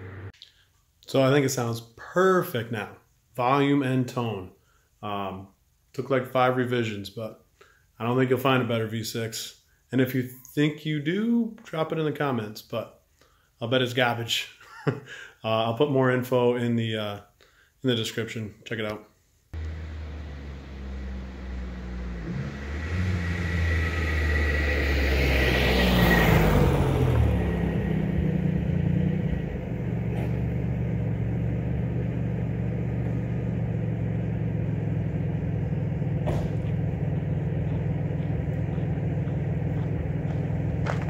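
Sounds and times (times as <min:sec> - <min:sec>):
car engine driving past: 0:00.0 - 0:00.4, 0:19.6 - 0:41.0
car engine idling: 0:00.0 - 0:00.4, 0:19.6 - 0:41.0.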